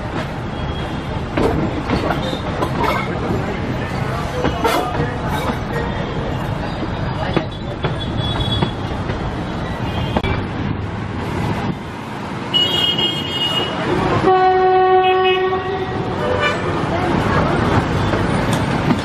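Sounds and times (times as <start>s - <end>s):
train wheels rumbling: 0.0s - 19.0s
locomotive horn blast: 12.6s - 16.7s.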